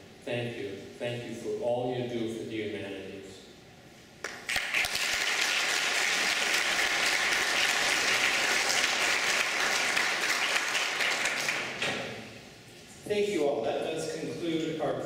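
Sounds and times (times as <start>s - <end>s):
audience applauding: 4.2s - 11.9s.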